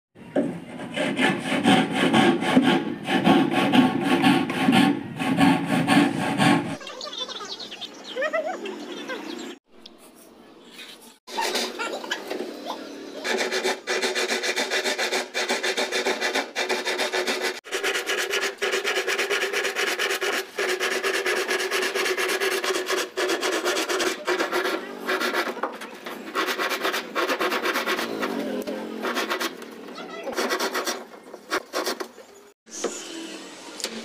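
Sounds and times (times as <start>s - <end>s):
hand saw cutting plywood: 0.4s - 6.8s, 11.3s - 12.0s, 13.2s - 29.6s, 30.3s - 32.2s.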